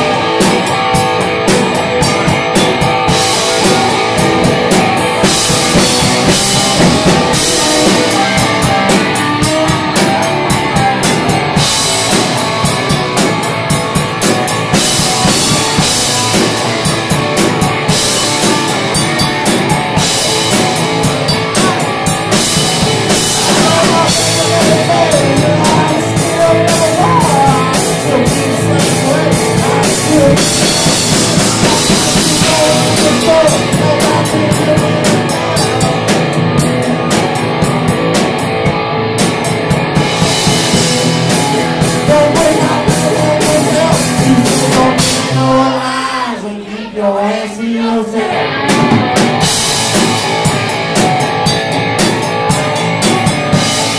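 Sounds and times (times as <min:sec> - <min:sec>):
live rock band playing: 0:00.0 - 0:47.0, 0:48.1 - 0:53.9.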